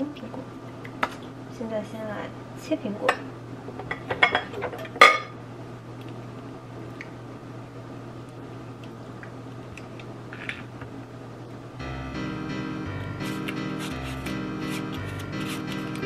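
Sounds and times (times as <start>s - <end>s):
steady low hum: 10.9s - 16.0s.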